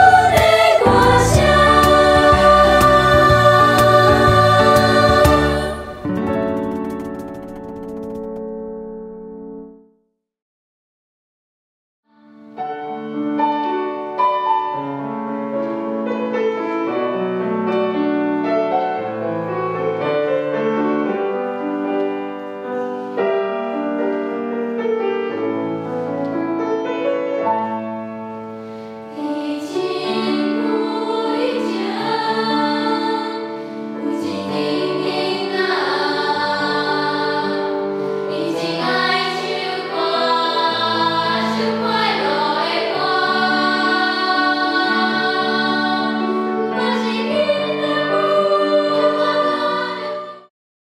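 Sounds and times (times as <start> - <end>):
children's choir singing: 0.0 - 6.2, 29.2 - 50.5
piano notes: 0.0 - 9.8.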